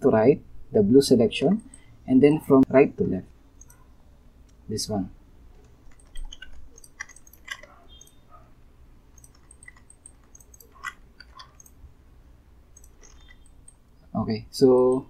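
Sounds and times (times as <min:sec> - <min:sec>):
computer mouse clicking: 0:03.0 - 0:03.8, 0:05.5 - 0:08.4, 0:09.1 - 0:11.8, 0:12.7 - 0:13.9, 0:14.7 - 0:15.0.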